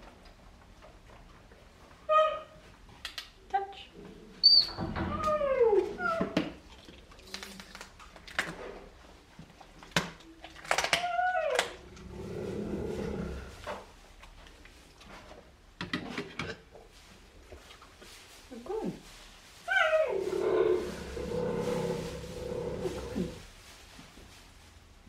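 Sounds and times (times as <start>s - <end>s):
cheetah purring rumble: 20.1s - 23.4s.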